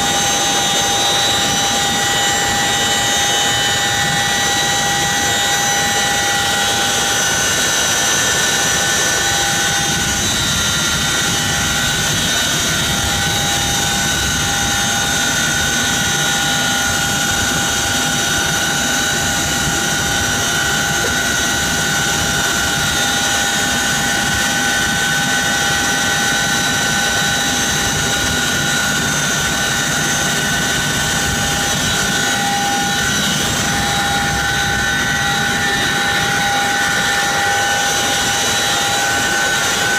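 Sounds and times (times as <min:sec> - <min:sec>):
helicopter rotor and engine noise: 0:00.0 - 0:39.9
helicopter turbine whine: 0:00.0 - 0:39.9.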